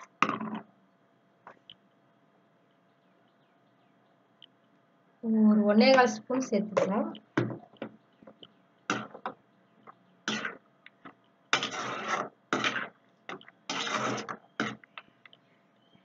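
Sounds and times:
spatula scraping metal pan: 0:08.9 - 0:09.2, 0:10.3 - 0:10.6, 0:11.5 - 0:14.8.

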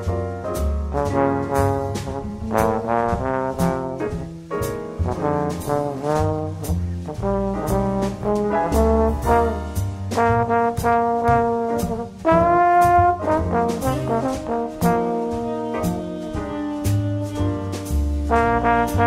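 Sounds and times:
instrumental music with steady beat: 0:00.0 - 0:19.0.

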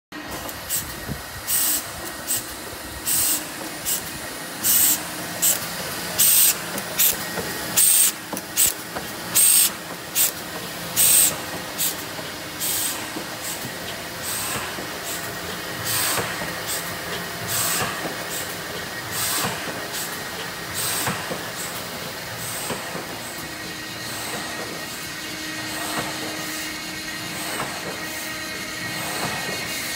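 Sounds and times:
machine hum: 0:00.2 - 0:29.9
sharp hiss of air: 0:00.6 - 0:05.5, 0:11.0 - 0:12.0, 0:12.6 - 0:13.6, 0:14.2 - 0:16.9, 0:17.5 - 0:18.5.

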